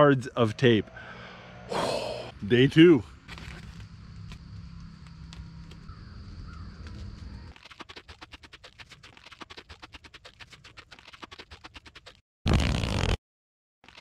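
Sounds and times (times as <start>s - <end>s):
duct tape pulled off roll: 7.6s - 13.2s.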